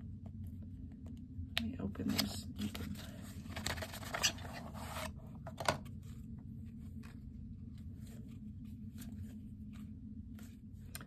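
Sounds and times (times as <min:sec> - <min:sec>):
low steady hum: 0:00.0 - 0:11.0
paper rustle: 0:02.1 - 0:05.2.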